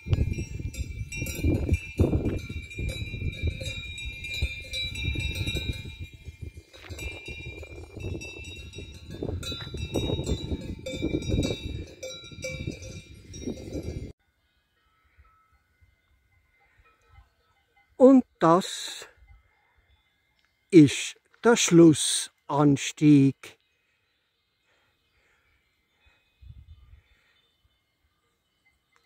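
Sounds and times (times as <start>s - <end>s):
cowbells clanking: 0.0s - 14.1s.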